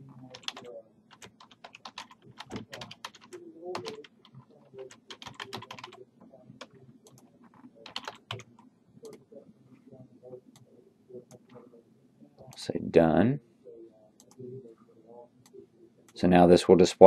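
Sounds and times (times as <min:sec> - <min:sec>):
computer keyboard typing: 0:00.0 - 0:06.0, 0:06.6 - 0:09.2.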